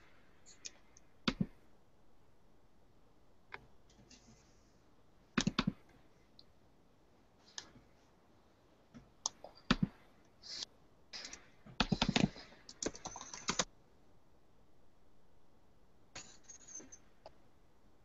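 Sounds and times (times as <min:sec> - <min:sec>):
typing on computer keyboard: 0:11.2 - 0:13.7.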